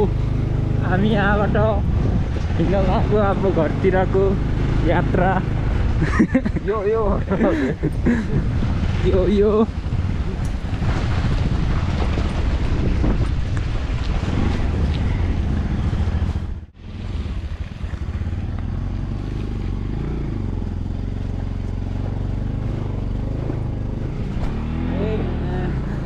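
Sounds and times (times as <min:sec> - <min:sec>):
wind rushing over microphone: 0:00.0 - 0:21.2
motorcycle engine running: 0:00.0 - 0:26.0.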